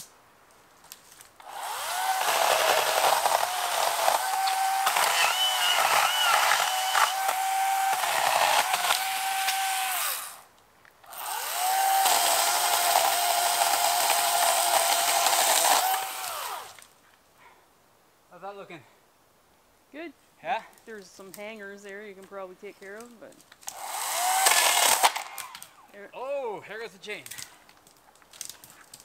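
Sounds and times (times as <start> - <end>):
chainsaw motor whine: 1.4 - 10.4, 11.1 - 16.8, 23.7 - 25.6.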